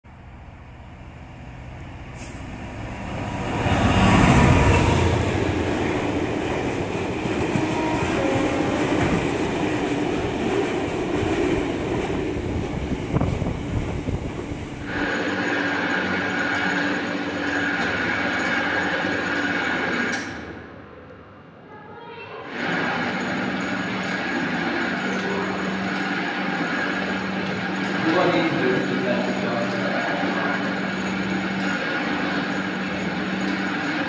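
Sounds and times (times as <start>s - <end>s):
diesel locomotive passing: 0.1s - 21.7s, 22.4s - 34.0s
train wheels clattering on rail: 3.1s - 20.5s.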